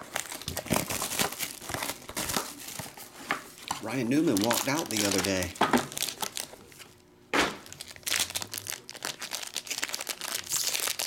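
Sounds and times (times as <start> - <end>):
sharp foil crackle: 0.0 - 2.8, 4.2 - 6.5, 7.6 - 11.0
foil pack crinkling: 0.0 - 7.0, 7.6 - 11.0.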